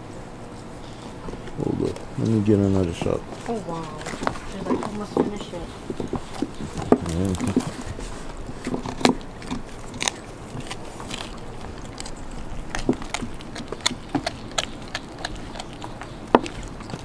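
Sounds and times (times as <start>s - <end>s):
dog gnawing a bone: 1.1s - 17.0s
teeth crunching on bone: 3.8s - 17.0s.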